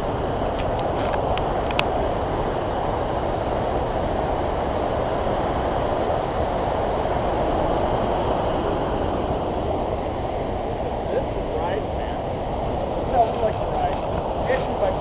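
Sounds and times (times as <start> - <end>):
water rushing over rocks: 0.0 - 15.0.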